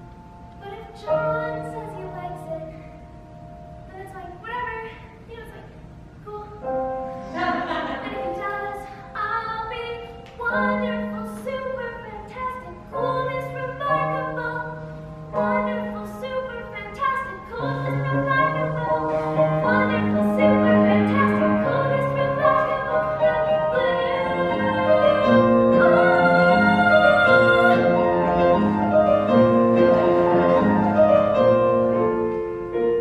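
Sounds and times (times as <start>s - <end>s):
piano accompaniment: 0.0s - 33.0s
young woman singing: 0.6s - 2.9s, 8.1s - 28.2s.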